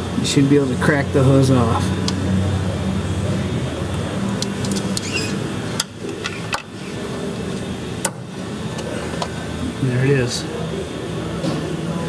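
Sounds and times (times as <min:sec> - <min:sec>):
steady low hum: 0:00.0 - 0:12.0
rubber hose rubbing: 0:04.5 - 0:05.4.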